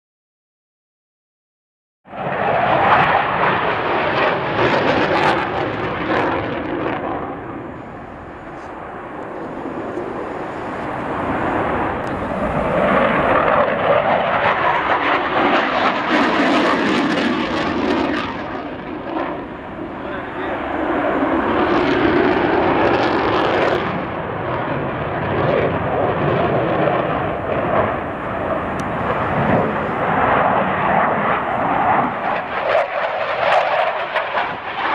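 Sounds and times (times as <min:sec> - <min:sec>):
fighter jet flying past: 0:02.1 - 0:34.9.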